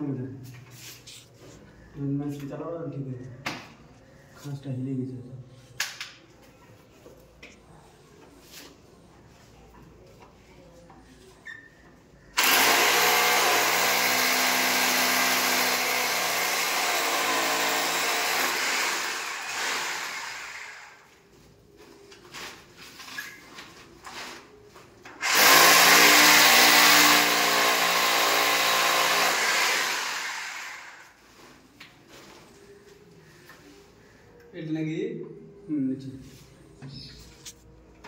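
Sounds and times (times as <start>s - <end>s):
electric drill whining: 12.4s - 21.1s, 25.2s - 31.1s.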